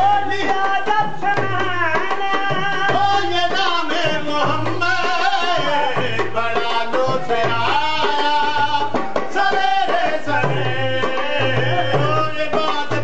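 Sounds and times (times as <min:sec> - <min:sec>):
hand drum beating: 0:00.0 - 0:13.0
men singing devotional song: 0:00.0 - 0:13.0.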